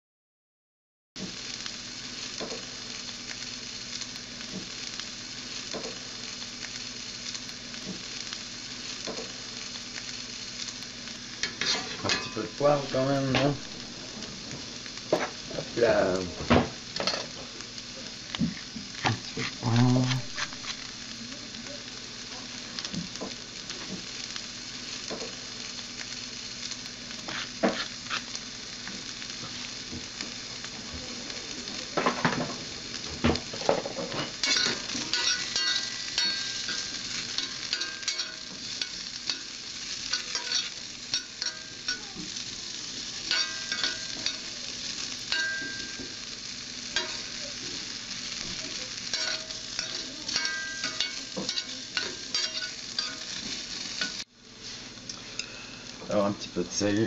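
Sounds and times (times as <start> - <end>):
food sizzling in oil: 1.2 - 57.0
metal spoon scraping pan: 11.4 - 12.4, 34.1 - 39.5, 40.1 - 42.0, 49.1 - 53.4.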